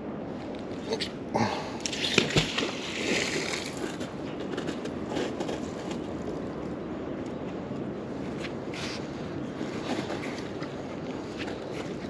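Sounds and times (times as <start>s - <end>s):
magnet splashing into water: 1.8s - 3.8s.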